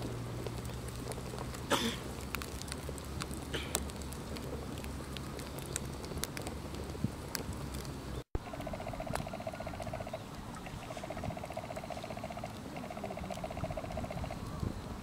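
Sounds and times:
wood fire crackling and popping: 0.0 - 14.8.

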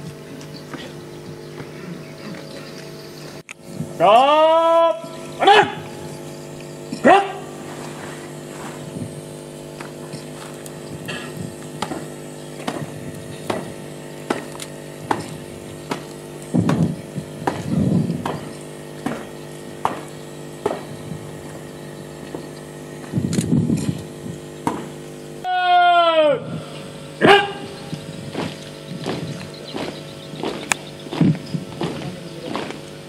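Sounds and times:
steady background hum: 0.0 - 33.0
marching boots stamping: 28.3 - 32.8.

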